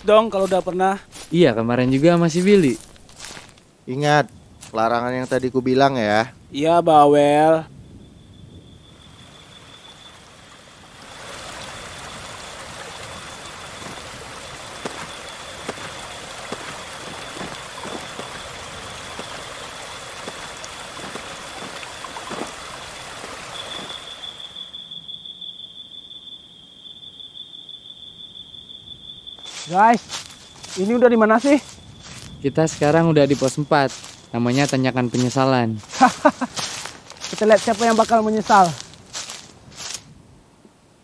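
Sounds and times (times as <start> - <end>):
insects droning: 0.0 - 41.0
stream rushing over rocks: 10.2 - 24.5
knocks or splashes: 20.1 - 23.9.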